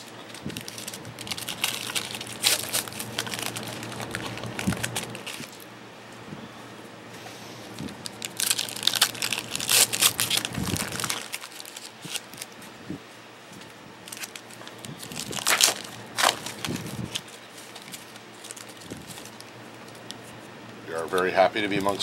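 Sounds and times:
foil wrappers crinkling and tearing: 0.0s - 5.7s, 7.6s - 12.8s, 13.5s - 20.3s.

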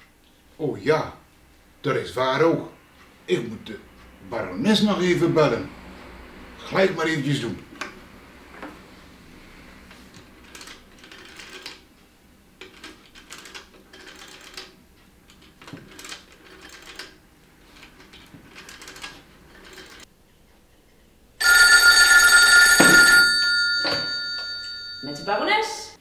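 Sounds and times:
rotary telephone dial clicking: 10.4s - 11.9s, 12.6s - 20.1s
telephone bell ringing: 21.4s - 26.0s.

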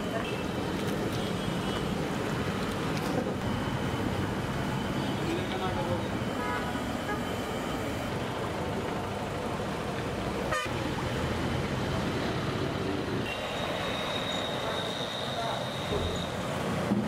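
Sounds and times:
roadside traffic: 0.0s - 17.0s
vehicle horn toot: 10.5s - 10.7s.

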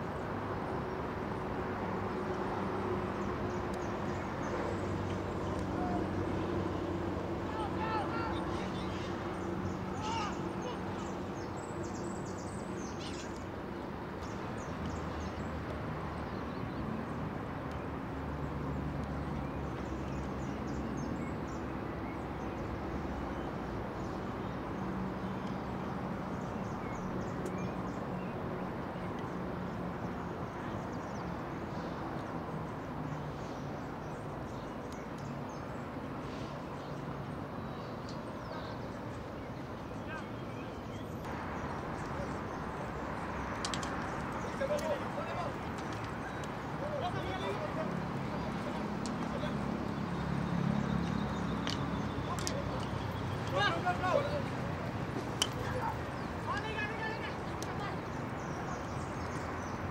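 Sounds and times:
outdoor ambient noise: 0.0s - 59.9s.

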